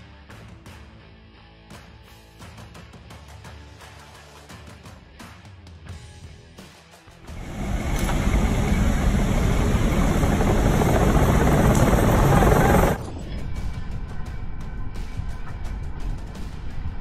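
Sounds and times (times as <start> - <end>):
background music: 0.0 - 17.0
aircraft engines and rushing air: 7.3 - 13.8.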